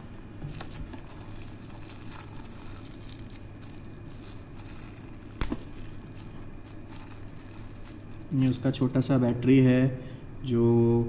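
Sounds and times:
plastic packet crinkling: 0.4 - 9.0.

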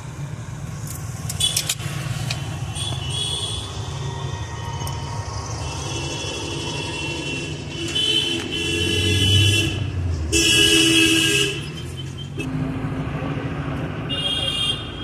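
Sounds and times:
low traffic rumble: 0.0 - 15.0
vehicle horns honking: 6.0 - 12.5, 14.1 - 15.0.

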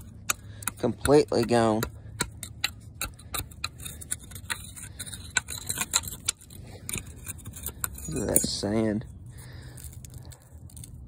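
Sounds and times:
steel rod scraping in metal cylinder: 2.2 - 9.2.

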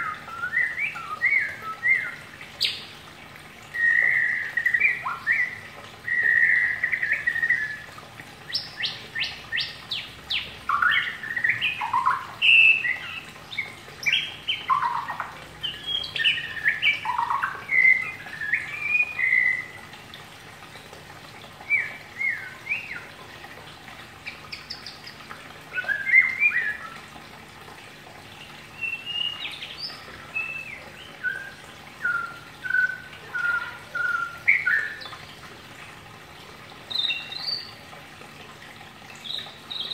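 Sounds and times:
songbird singing whistled notes: 0.0 - 2.8, 3.8 - 7.9, 8.5 - 19.8, 21.6 - 23.1, 25.7 - 27.0, 28.8 - 35.2, 39.2 - 39.9.

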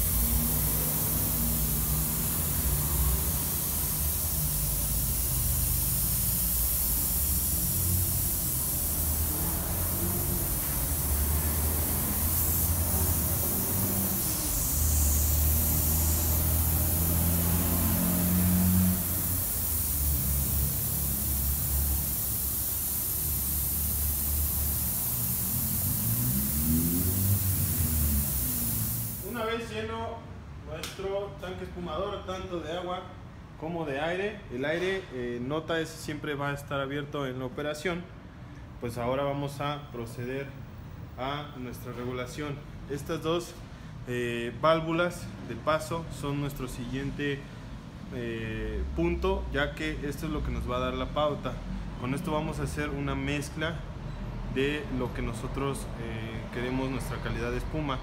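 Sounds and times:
air compressor running: 0.0 - 29.4
high hiss of air: 0.0 - 29.6.

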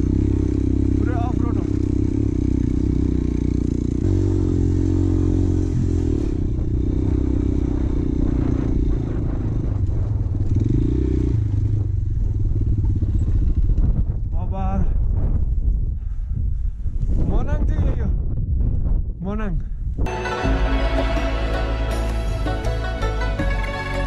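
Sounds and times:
motorcycle engine running: 0.0 - 16.2.

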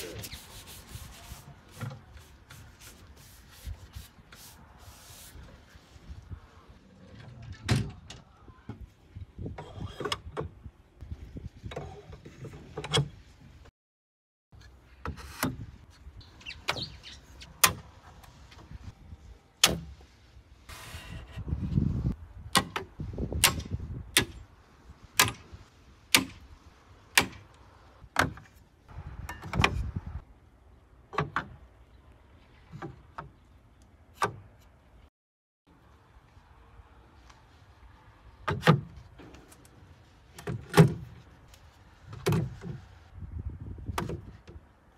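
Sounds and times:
wood sliding and rubbing: 0.0 - 6.0.

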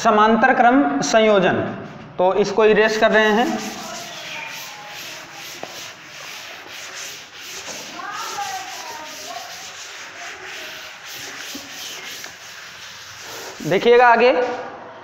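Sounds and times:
eraser rubbing chalkboard: 2.8 - 14.6.

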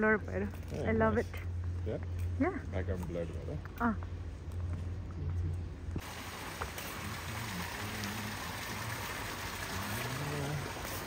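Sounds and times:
fountain water splashing into pool: 6.0 - 11.0.

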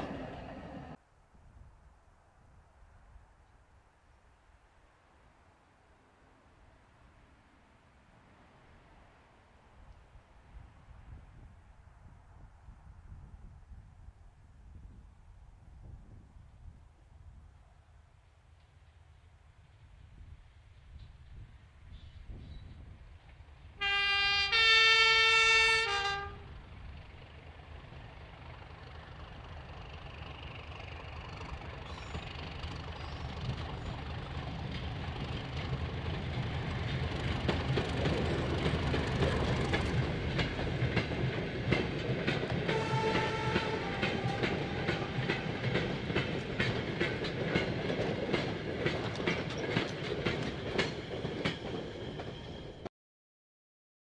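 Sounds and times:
diesel locomotive engine: 0.0 - 1.0, 18.2 - 52.9
two-tone locomotive horn: 23.8 - 26.6, 42.7 - 45.8
wagon wheels clicking on rail joints: 28.4 - 52.8.

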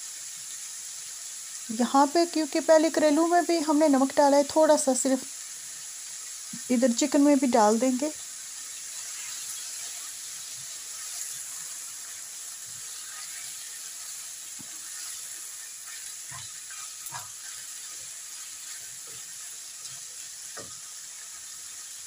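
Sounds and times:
food sizzling in frying pan: 0.0 - 22.0
spatula scraping and tapping: 15.8 - 18.0.

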